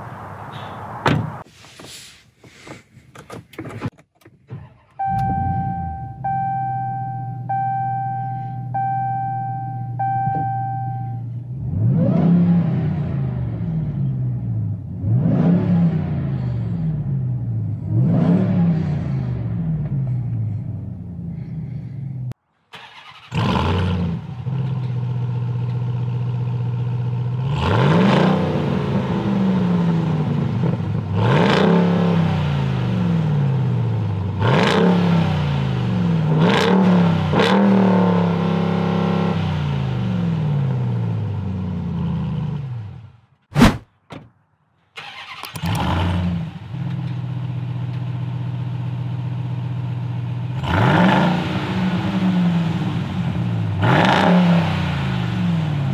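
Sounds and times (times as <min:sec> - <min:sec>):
truck engine starting and idling: 0:04.3 - 0:11.1, 0:22.6 - 0:27.1, 0:44.9 - 0:49.3
engine revving: 0:11.6 - 0:20.2, 0:22.8 - 0:24.7, 0:27.3 - 0:42.9, 0:45.0 - 0:47.0, 0:50.5 - 0:55.9.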